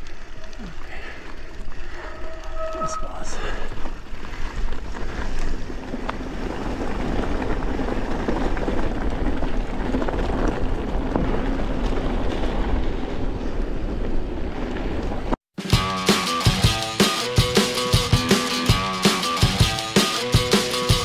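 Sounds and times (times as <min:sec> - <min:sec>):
mountain bike rumbling on trail: 0:00.0 - 0:15.4.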